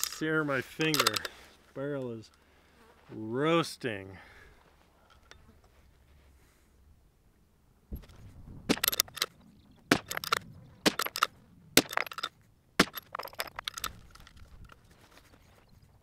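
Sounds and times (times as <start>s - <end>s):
cartridges rattling in plastic box: 0.0s - 1.4s, 8.1s - 14.9s
bolt-action rifle clicking: 0.8s - 1.3s, 8.7s - 14.8s.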